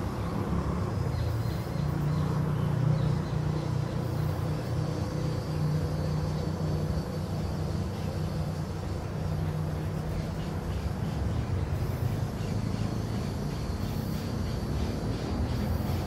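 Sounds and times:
distant street traffic rumble: 0.0 - 16.0.

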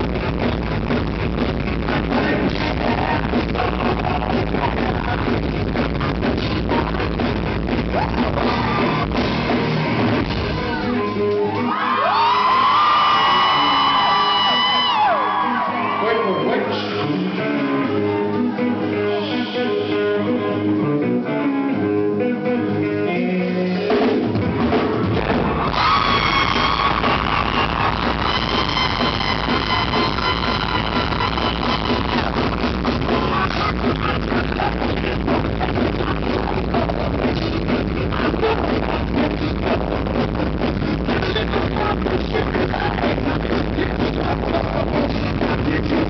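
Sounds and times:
rock band playing live: 0.0 - 46.0
electric guitar run: 24.4 - 45.8.

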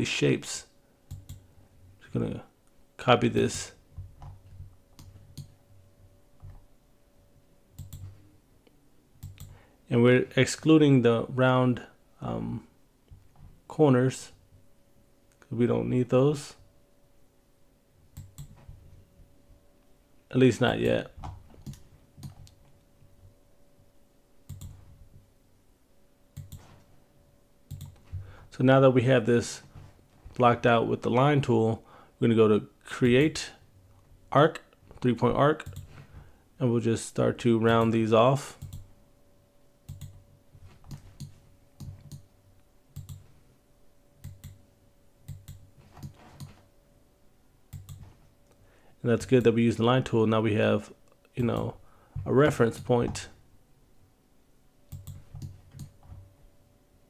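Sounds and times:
faint steady hum: 0.0 - 57.0
computer mouse clicks: 1.1 - 1.4, 4.0 - 5.6, 7.8 - 9.6, 18.1 - 18.6, 21.2 - 22.6, 24.5 - 24.9, 26.4 - 26.8, 27.7 - 28.1, 35.6 - 36.0, 38.6 - 38.9, 39.9 - 40.2, 40.8 - 42.3, 42.9 - 43.3, 44.2 - 44.6, 45.2 - 46.6, 47.7 - 48.1, 54.9 - 56.0.

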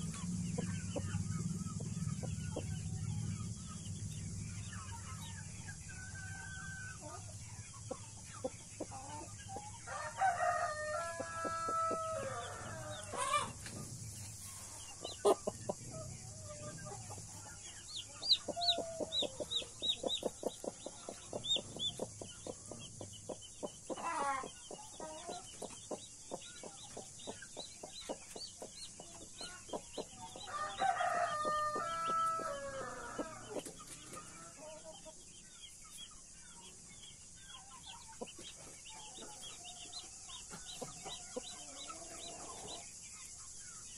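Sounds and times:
chicks peeping: 0.0 - 43.9
rooster crowing: 9.8 - 13.6, 30.4 - 33.6.

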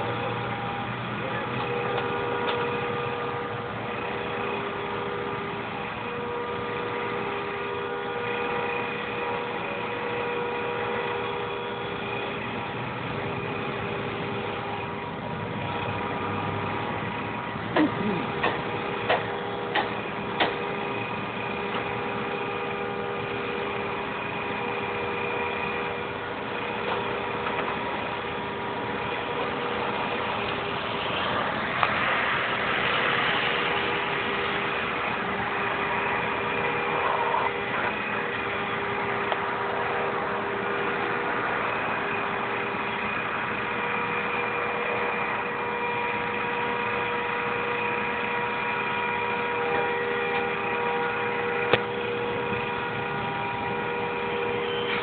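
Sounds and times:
vehicle engine humming: 0.0 - 55.0.

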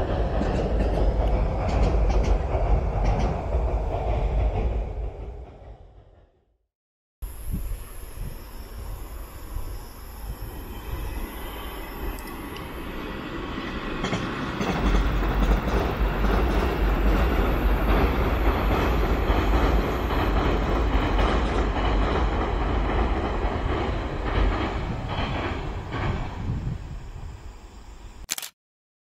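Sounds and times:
rail-joint clacks: 0.0 - 6.2, 14.0 - 26.4
train wheels rumbling on track: 0.0 - 6.5, 7.6 - 27.4.

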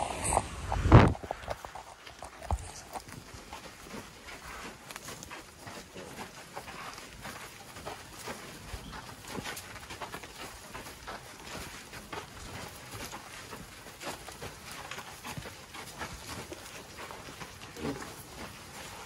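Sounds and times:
elephant footsteps on sand: 0.0 - 19.0.

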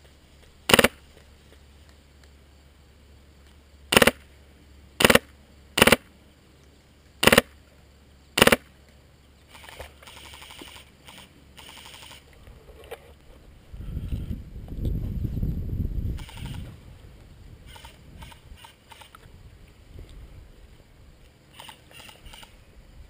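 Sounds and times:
airsoft gunfire bursts: 0.7 - 1.0, 3.9 - 4.2, 5.0 - 6.1, 7.2 - 7.6, 8.4 - 8.7
rapid airsoft fire rattle: 0.7 - 1.0, 3.9 - 4.2, 5.0 - 6.1, 7.2 - 7.6, 8.4 - 8.7.

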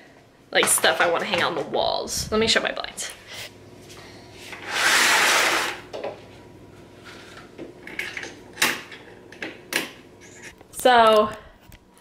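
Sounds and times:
window blind slats rattling: 4.6 - 5.9.

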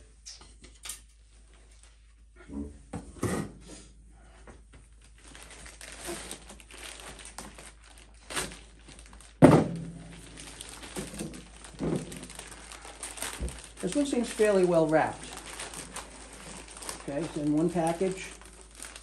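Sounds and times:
plastic wrapping crinkling: 4.9 - 19.0
sharp thunk: 9.4 - 9.9.

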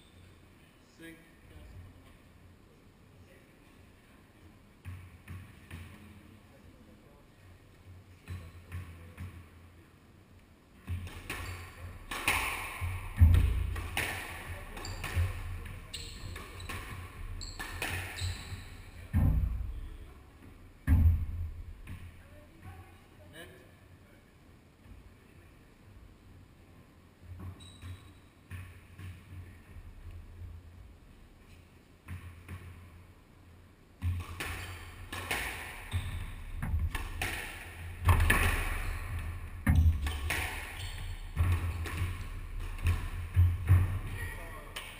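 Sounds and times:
squash ball hits: 10.8 - 19.8, 34.0 - 44.9
shoes squeaking on wooden floor: 14.7 - 19.0, 27.4 - 28.2, 35.8 - 36.6, 38.8 - 44.3.

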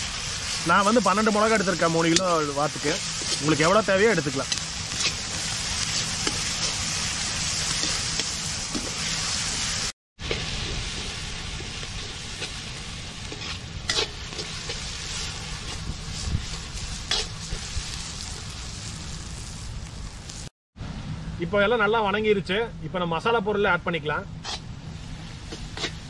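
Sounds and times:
vegetables sizzling in oil: 0.0 - 20.5, 24.4 - 26.0
metal ladle scraping pan: 4.5 - 9.2, 13.2 - 15.8, 24.4 - 24.7, 25.5 - 26.0.

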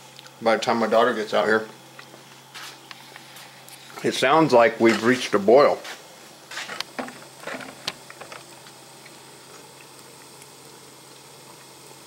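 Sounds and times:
water hissing near boil: 0.0 - 12.0
small bubbles ticking: 7.8 - 12.0.

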